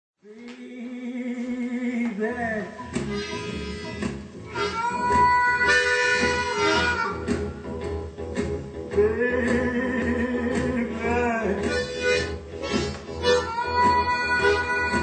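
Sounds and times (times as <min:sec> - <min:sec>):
blues harmonica playing: 0:03.0 - 0:07.5, 0:11.7 - 0:15.0.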